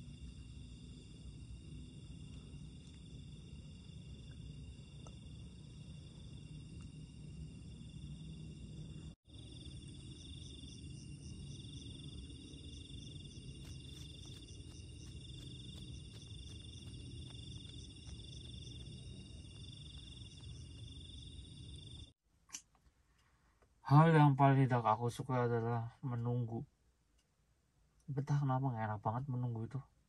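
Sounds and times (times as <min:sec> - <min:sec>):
crickets trilling: 0:00.0 - 0:22.2.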